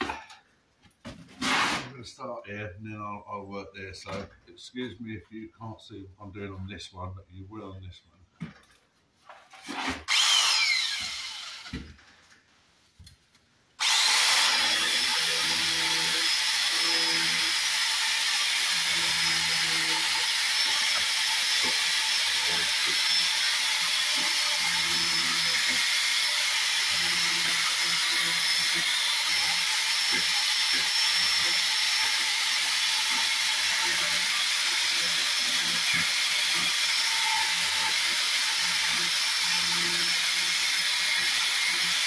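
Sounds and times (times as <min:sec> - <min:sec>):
electric saw cutting brick: 0:09.6 - 0:11.9, 0:13.8 - 0:42.0.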